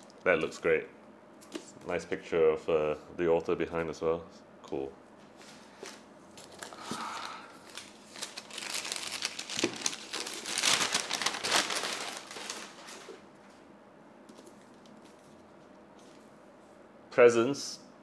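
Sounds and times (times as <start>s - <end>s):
wrapping paper crinkling: 5.8s - 13.2s.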